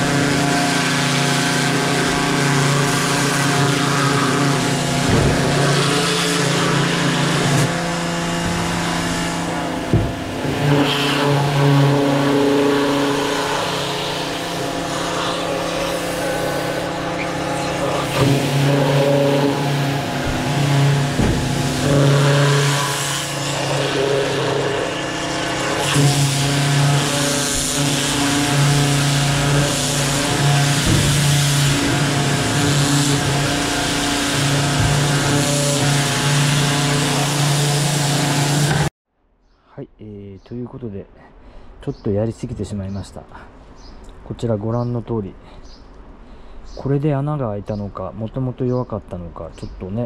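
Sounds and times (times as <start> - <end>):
pressure washer motor hum: 0.0 - 38.9
water jet hissing on shoe: 10.4 - 24.7, 25.6 - 38.9.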